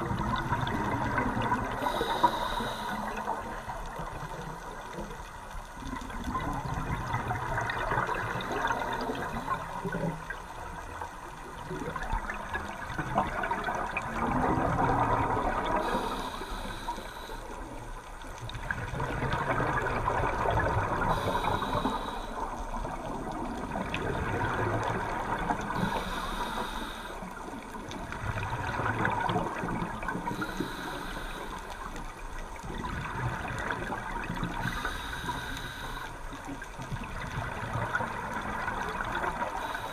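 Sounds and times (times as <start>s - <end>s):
exhaled bubbles rushing underwater: 0.0s - 39.9s
regulator inhale hiss: 1.7s - 3.8s, 15.7s - 17.8s, 21.0s - 22.7s, 25.8s - 27.7s, 30.2s - 32.0s, 34.5s - 36.5s, 39.4s - 39.9s.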